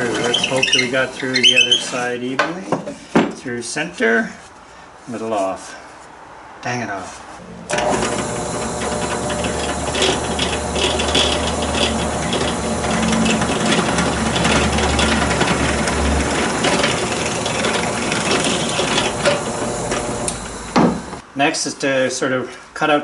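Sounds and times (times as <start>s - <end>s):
drill press motor humming: 0.0s - 1.2s, 7.7s - 21.2s
drill bit cutting wood: 0.0s - 1.8s, 7.7s - 21.2s.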